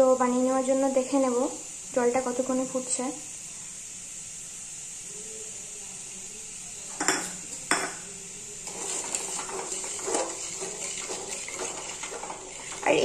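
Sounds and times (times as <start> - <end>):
utensil knocking against pan: 7.0 - 8.0
utensil scraping pan while stirring: 8.6 - 13.0.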